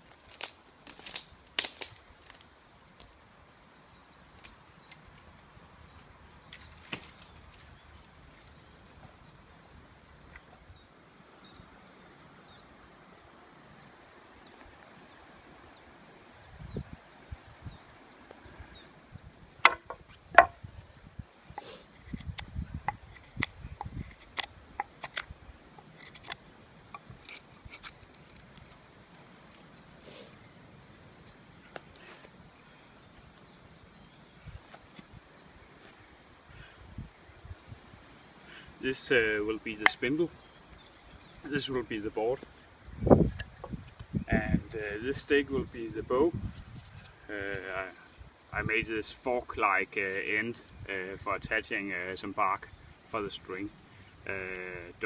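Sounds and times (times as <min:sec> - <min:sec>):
twigs snapping underfoot: 0:00.0 - 0:03.2, 0:04.3 - 0:08.1, 0:22.0 - 0:29.7
dull thumps: 0:19.6 - 0:20.6.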